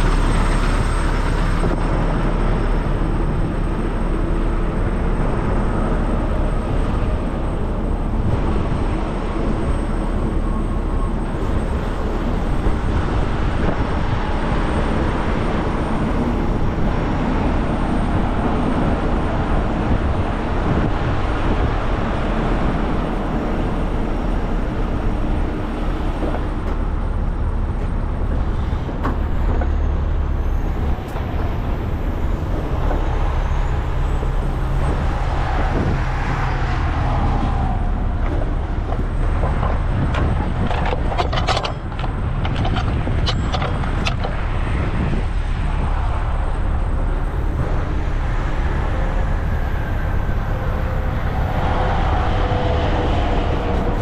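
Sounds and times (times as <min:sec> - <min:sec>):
tow chains clanking and rattling: 0:39.4 - 0:44.4.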